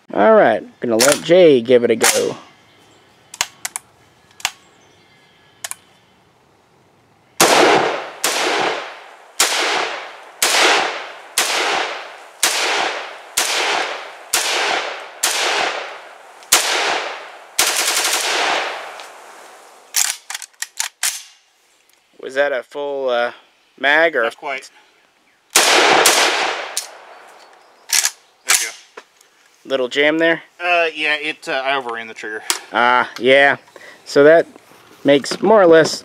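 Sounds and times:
rifle shots with echo: 7.4 - 19.0, 25.6 - 27.1.

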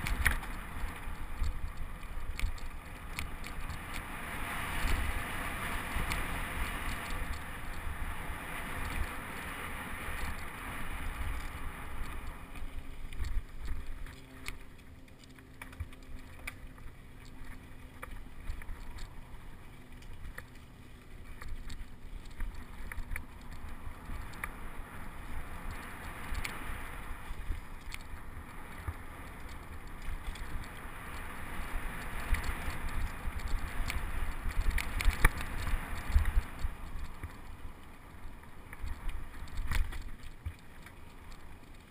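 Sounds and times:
bike clicks and rattles: 0.0 - 41.9.

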